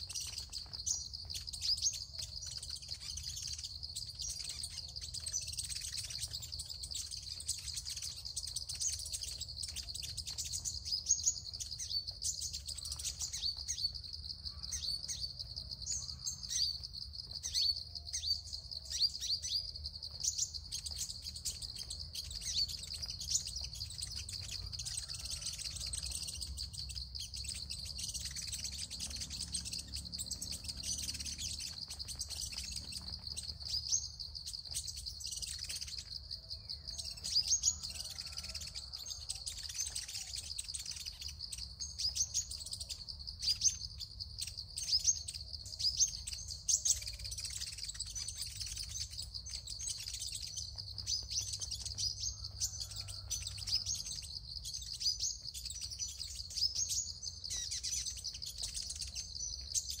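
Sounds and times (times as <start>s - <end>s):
birds chirping and twittering: 0.0s - 60.0s.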